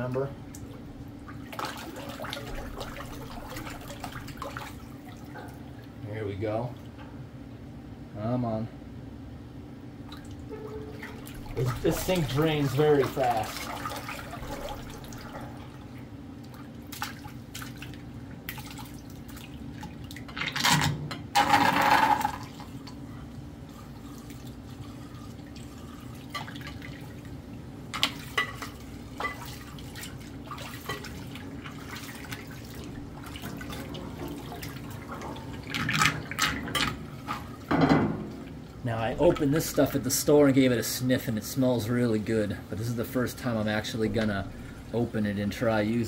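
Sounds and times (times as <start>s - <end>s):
water splashing and clatter: 0.6s - 5.6s, 10.1s - 23.0s, 24.0s - 27.3s, 27.9s - 40.0s
water draining from a metal sink: 1.2s - 5.6s, 10.1s - 20.7s, 28.3s - 40.7s.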